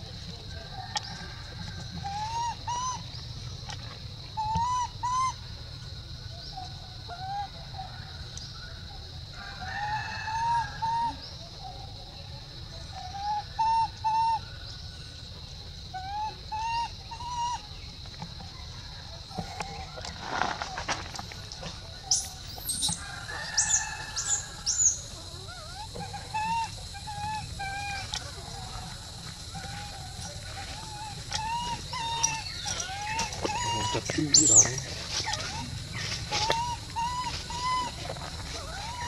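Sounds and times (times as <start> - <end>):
baby monkey whimpering cries: 4.4 - 5.3, 16.0 - 17.6, 25.5 - 28.2, 30.8 - 34.6, 36.4 - 38.0, 38.6 - 39.0.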